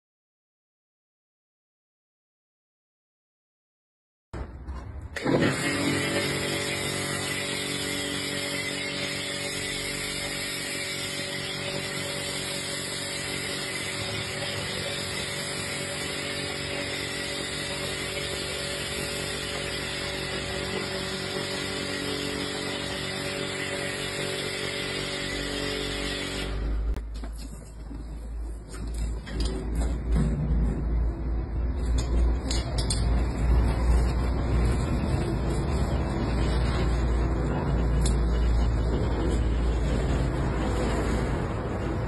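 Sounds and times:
pressure washer motor and pump: 0:05.1 - 0:27.2, 0:31.8 - 0:42.0.

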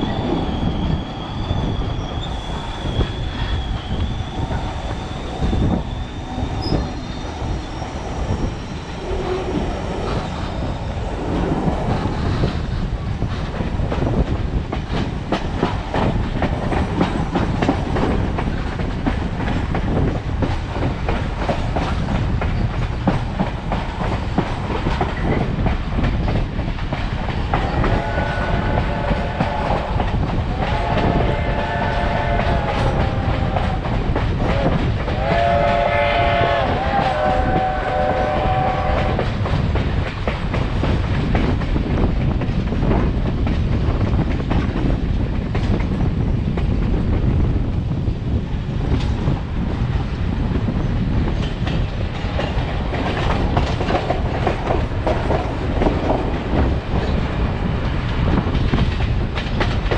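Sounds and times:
train car rumble and clickety-clack: 0:00.0 - 0:59.9
steam locomotive chime whistle: 0:34.5 - 0:39.2.

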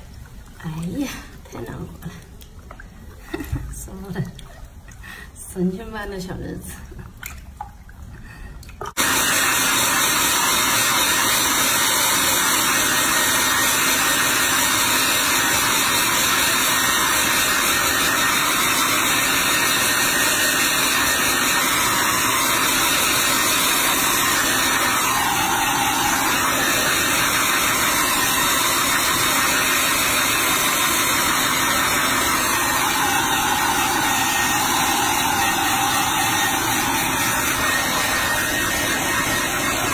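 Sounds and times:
hair dryer blowing: 0:08.9 - 0:39.9.

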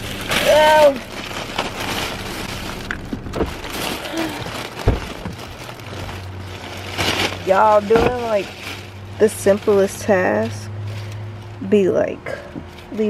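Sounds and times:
fabric rustling: 0:00.0 - 0:11.8
heavy low thump: 0:02.8 - 0:03.8, 0:04.5 - 0:05.6.

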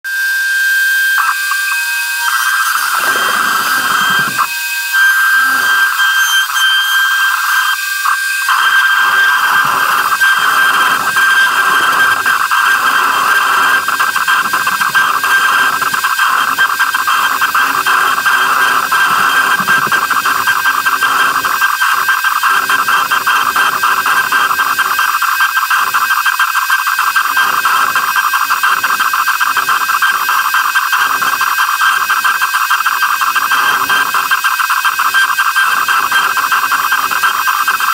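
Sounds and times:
router spindle whining: 0:00.1 - 0:37.9
bit rasping through wood: 0:01.2 - 0:07.7, 0:08.4 - 0:26.1.

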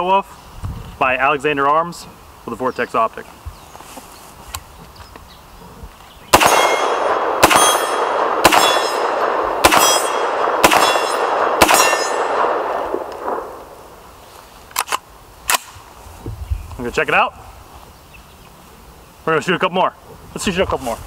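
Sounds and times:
rifle shots: 0:06.3 - 0:14.0
steel target clanging: 0:06.4 - 0:12.8.

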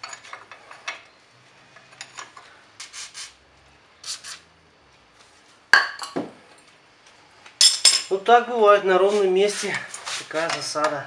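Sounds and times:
aerosol spray hissing: 0:02.8 - 0:03.4, 0:04.0 - 0:04.4.

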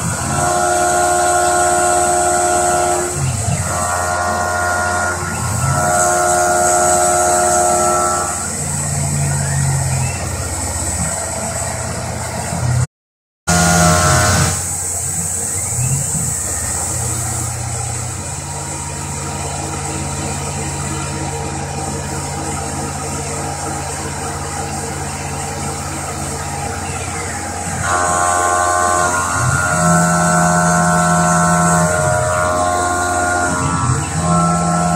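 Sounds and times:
milling machine whine: 0:00.0 - 0:12.8, 0:13.5 - 0:34.9
low tone gliding up: 0:13.5 - 0:34.9.

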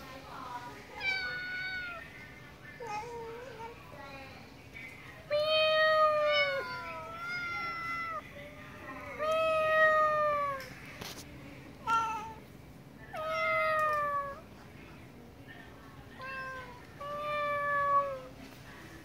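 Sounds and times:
cats meowing: 0:01.0 - 0:02.1, 0:05.3 - 0:08.2, 0:09.2 - 0:10.6, 0:13.2 - 0:14.4, 0:16.2 - 0:18.3.

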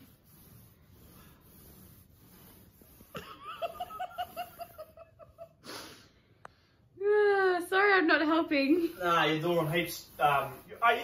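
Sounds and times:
person laughing: 0:03.2 - 0:05.6.

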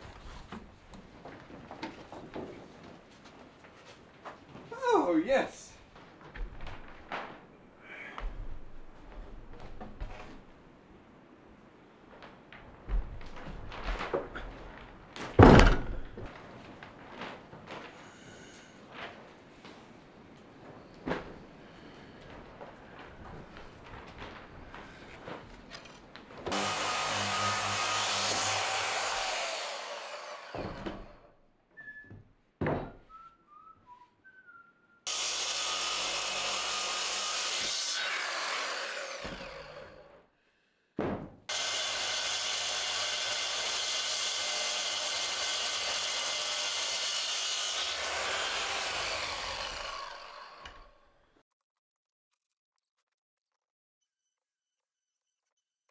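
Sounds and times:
circular saw cutting timber: 0:26.5 - 0:31.3, 0:35.1 - 0:40.2, 0:41.5 - 0:51.1.

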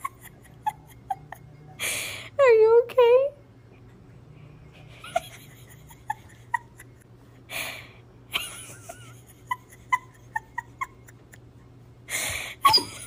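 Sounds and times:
dog whimpering squeaks: 0:12.6 - 0:13.0
dog whining: 0:12.6 - 0:13.0.

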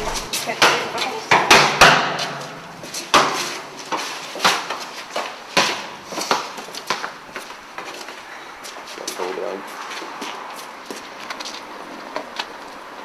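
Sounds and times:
football thumps echoing: 0:00.0 - 0:00.8.

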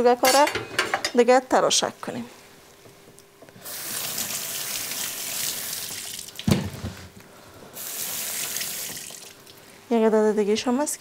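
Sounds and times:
kitchen tap running: 0:03.6 - 0:06.6, 0:07.8 - 0:09.6.

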